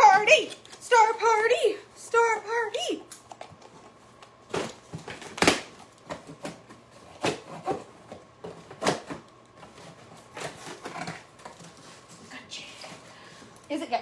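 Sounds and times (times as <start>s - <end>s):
packaging rustling and scraping: 3.5s - 13.6s.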